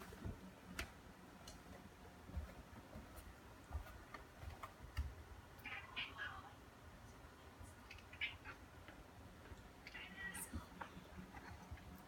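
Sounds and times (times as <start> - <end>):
footsteps on carpeted stairs: 0.0 - 5.4.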